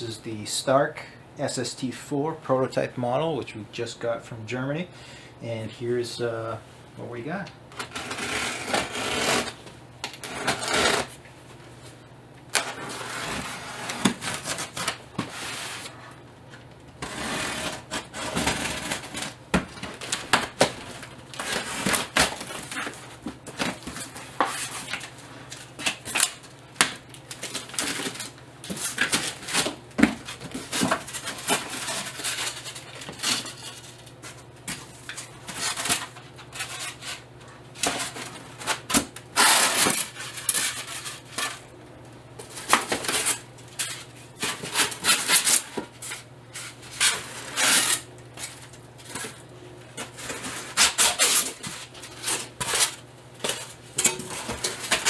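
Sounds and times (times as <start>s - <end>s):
packing tape being peeled: 7.8s - 11.1s, 17.0s - 33.8s, 37.8s - 41.5s, 42.6s - 49.4s, 50.0s - 53.8s
cardboard flaps scraping: 12.5s - 16.1s, 17.0s - 25.1s.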